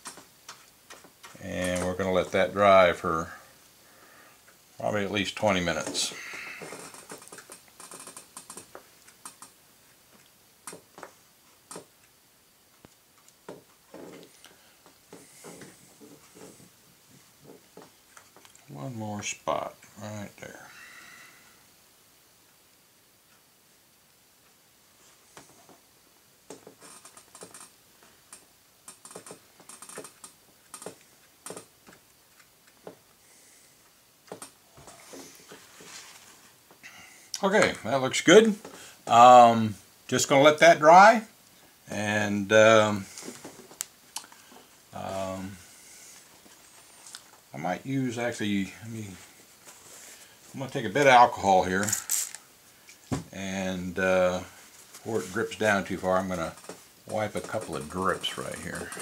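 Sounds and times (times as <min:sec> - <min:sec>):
soft rustles: 0:13.2 - 0:18.6, 0:34.7 - 0:36.8, 0:42.8 - 0:53.1, 0:54.2 - 0:59.0.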